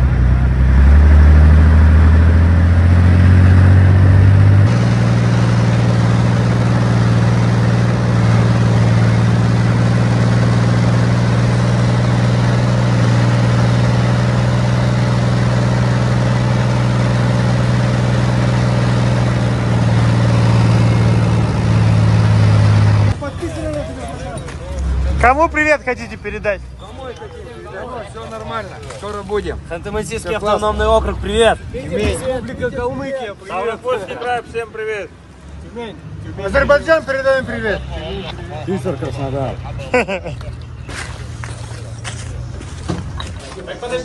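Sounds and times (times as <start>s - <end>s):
armoured vehicle engine running: 0.0s - 25.9s.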